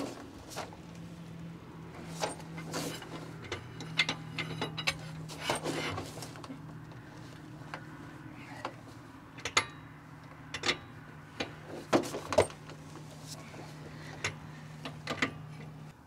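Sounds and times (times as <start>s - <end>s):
metal scraping: 2.0s - 6.5s.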